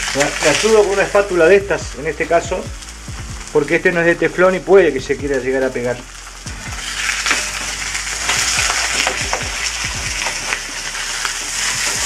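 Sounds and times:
fish sizzling in a frying pan: 0.0s - 12.0s
spatula scraping a pan: 6.7s - 12.0s.

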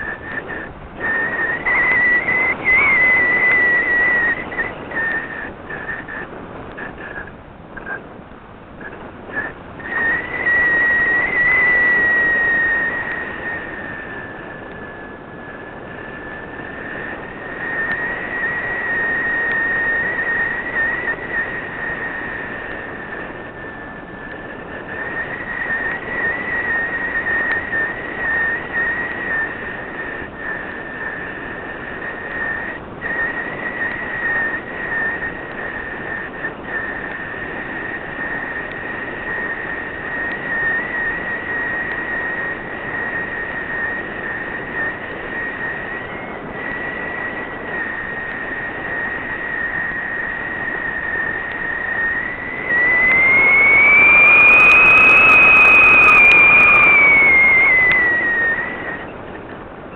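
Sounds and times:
aircraft motor and propeller whine: 0.0s - 59.9s
rushing noise: 36.9s - 59.9s.

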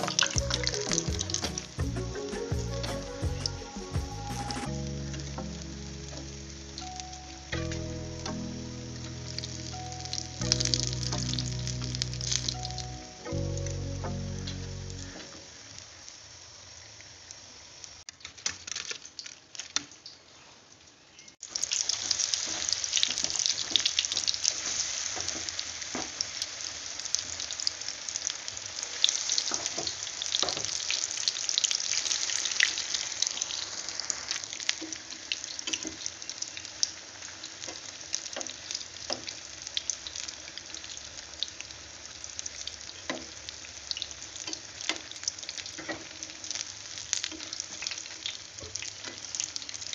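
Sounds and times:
food sizzling in hot oil: 0.0s - 1.8s, 4.7s - 13.4s, 21.4s - 49.9s.

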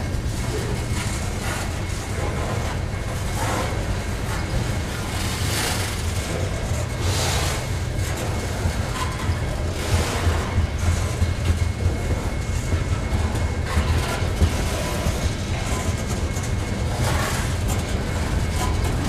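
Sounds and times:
freight cars rattling: 0.0s - 19.0s
train wheels rumbling on rails: 0.0s - 19.0s.

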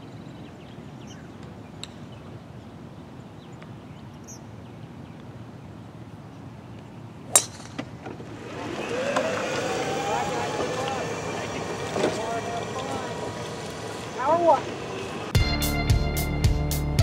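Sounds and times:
outdoor background noise: 0.0s - 15.4s
golf club striking ball: 7.3s - 8.2s.

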